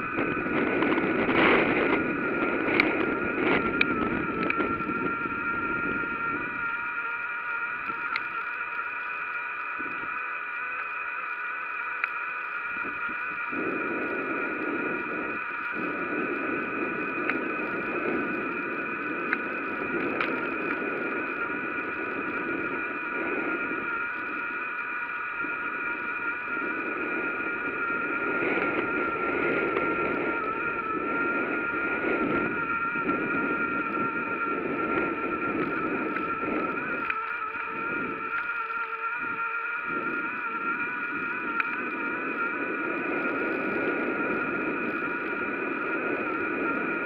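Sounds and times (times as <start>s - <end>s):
bicycle tyre and wind rush: 0.0s - 47.0s
high whine: 0.0s - 47.0s
light ticks: 7.8s - 10.2s, 11.9s - 12.2s, 19.2s - 20.8s.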